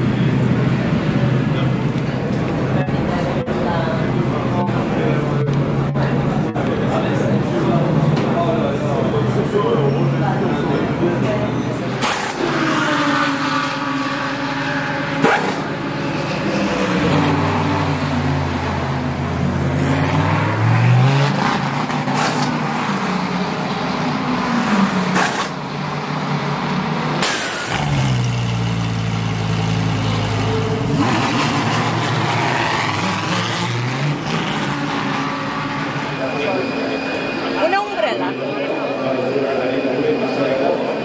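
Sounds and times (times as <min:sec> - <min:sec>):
race car engine revving: 0:10.2 - 0:41.0.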